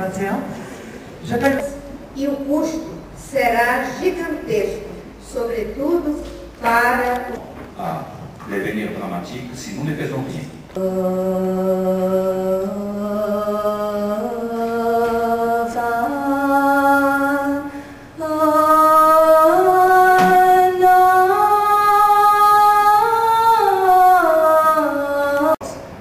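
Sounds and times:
breath: 0:00.5 - 0:01.2, 0:17.7 - 0:18.1
woman chanting: 0:01.2 - 0:07.4, 0:10.8 - 0:25.9.

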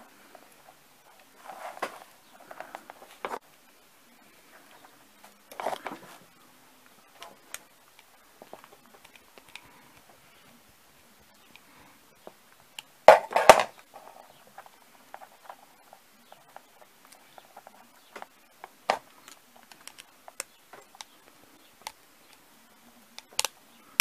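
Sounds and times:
screwdriver clicking and scraping: 0:18.6 - 0:21.2.

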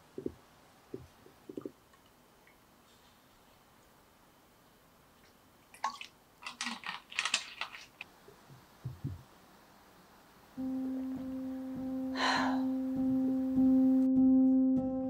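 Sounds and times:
fizzing drink crackling: 0:05.2 - 0:08.1
soft low knock: 0:08.8 - 0:09.3
music with humming tone: 0:10.5 - 0:15.0.

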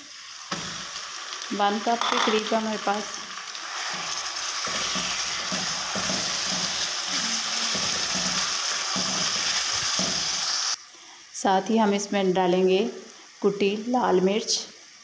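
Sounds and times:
chicken sizzling in hot oil: 0:00.0 - 0:10.9
spatula scraping a wok: 0:03.5 - 0:10.8.

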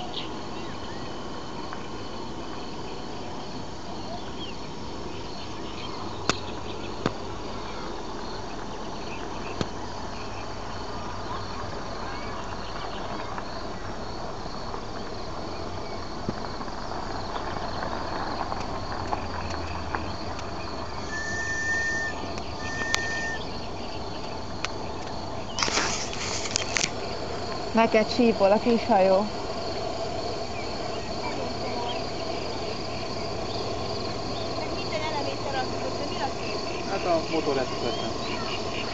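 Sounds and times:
crickets chirping: 0:00.0 - 0:38.9
whistle-like notes: 0:21.0 - 0:23.5.

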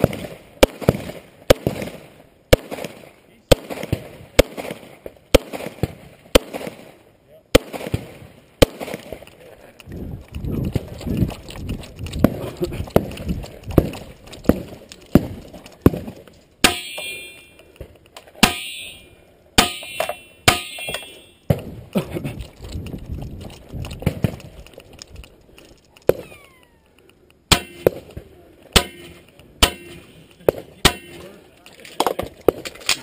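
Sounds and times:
metallic ring: 0:16.7 - 0:17.6, 0:18.4 - 0:21.5.

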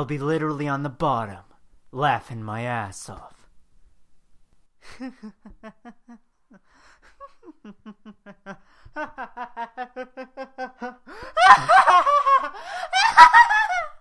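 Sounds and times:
person laughing mockingly: 0:04.8 - 0:14.0
shrill cackle: 0:09.1 - 0:14.0.

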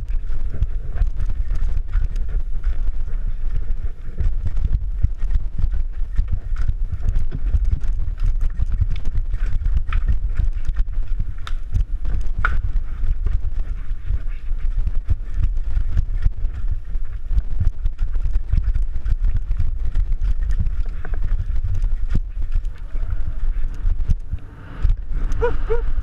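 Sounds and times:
mountain bike rattling over rocks: 0:00.0 - 0:24.3
wind rumble on microphone: 0:00.0 - 0:26.0.

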